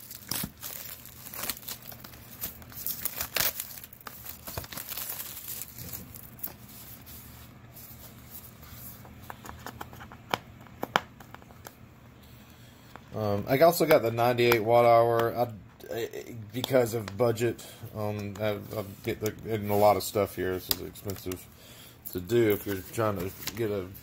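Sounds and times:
plastic wrapping crinkling: 0:00.0 - 0:09.0.

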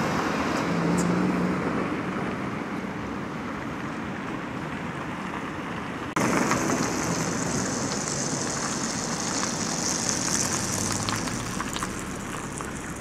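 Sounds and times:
car driving past close by: 0:06.2 - 0:13.0
tyres and engines hissing: 0:06.2 - 0:13.0.

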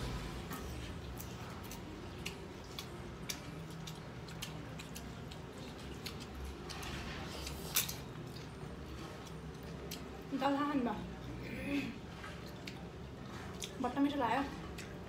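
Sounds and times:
chewing crunches: 0:00.8 - 0:10.3.

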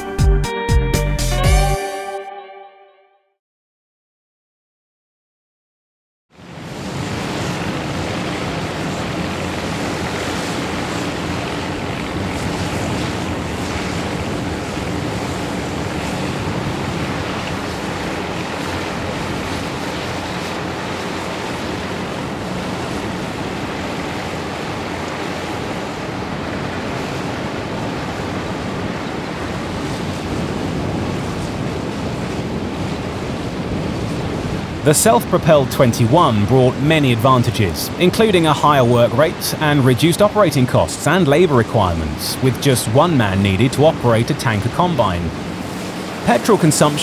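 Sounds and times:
combine harvesters rumbling: 0:33.5 - 0:47.0.

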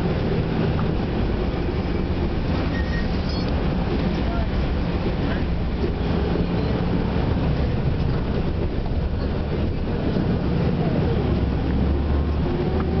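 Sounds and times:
bus engine and road noise: 0:00.0 - 0:13.0.

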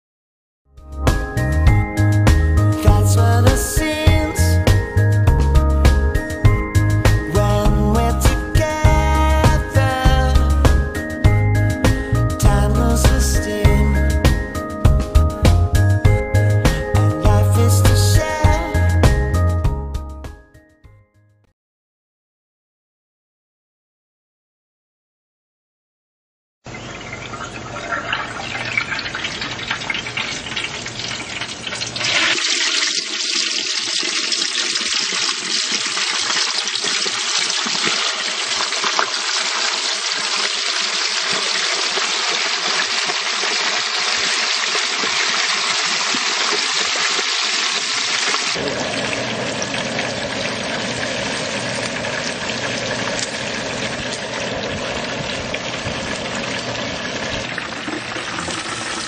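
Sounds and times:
hot oil bubbling and sizzling: 0:26.7 - 0:59.0.

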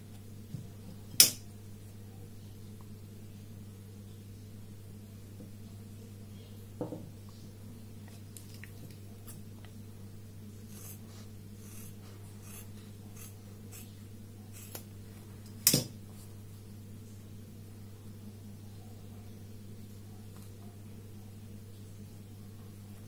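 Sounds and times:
low electrical hum: 0:00.0 - 0:23.0
soft knock: 0:06.8 - 0:07.1
paper rubbing on fabric: 0:10.7 - 0:13.9.

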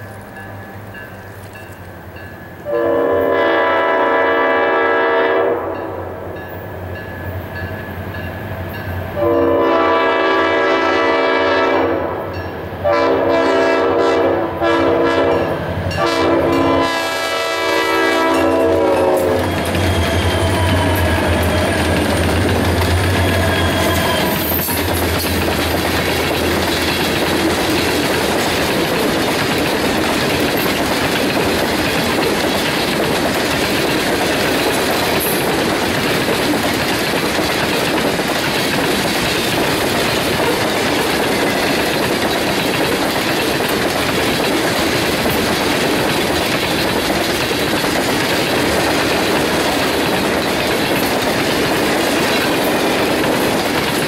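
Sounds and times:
train rumble and wheel clatter: 0:00.0 - 0:54.0
locomotive air horn blasts: 0:02.7 - 0:05.9, 0:09.2 - 0:19.7.

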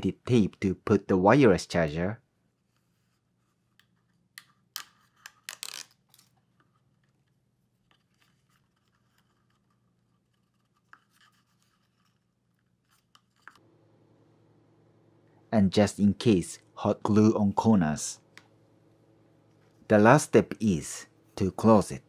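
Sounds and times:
scratchy rubbing: 0:08.0 - 0:13.6.

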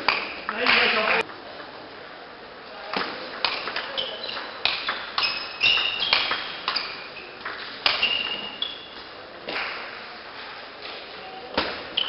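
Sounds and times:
short high squeaks: 0:05.2 - 0:09.0.

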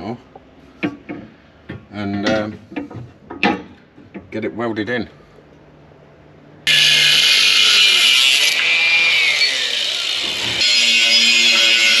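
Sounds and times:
angle grinder on metal: 0:06.7 - 0:12.0.

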